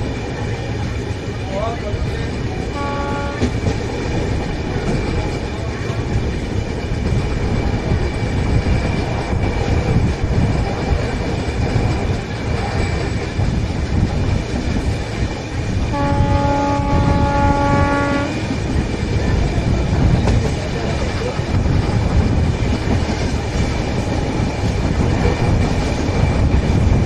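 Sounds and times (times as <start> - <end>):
train coaches rumbling past: 0.0 - 27.0
train horn blast: 2.7 - 3.6, 15.9 - 18.5.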